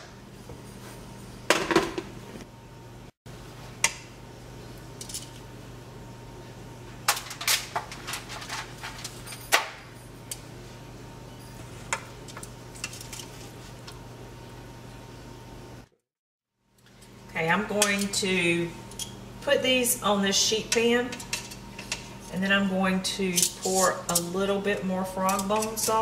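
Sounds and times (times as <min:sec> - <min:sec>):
metal tongs clinking in pot: 0:20.7 - 0:22.0, 0:23.3 - 0:24.4, 0:25.1 - 0:26.0.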